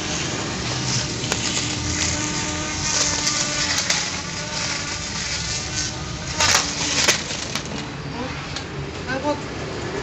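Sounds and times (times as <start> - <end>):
grass trimmer motor whine: 0.0 - 7.8
crackling of cut debris: 0.0 - 8.7.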